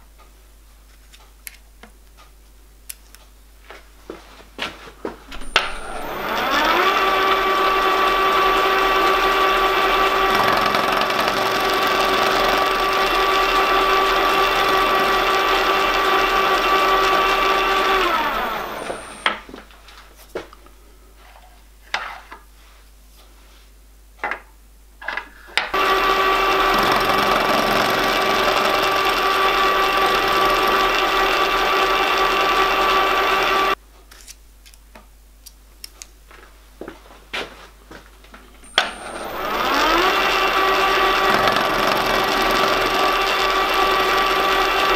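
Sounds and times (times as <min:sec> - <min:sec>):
milling machine spindle whine: 0:05.3 - 0:19.4, 0:25.7 - 0:33.8, 0:38.6 - 0:44.9.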